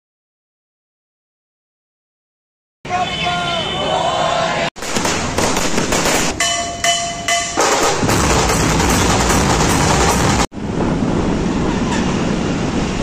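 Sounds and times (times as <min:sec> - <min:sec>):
street traffic noise: 0:02.9 - 0:13.0
loud dense drumming: 0:05.0 - 0:10.5.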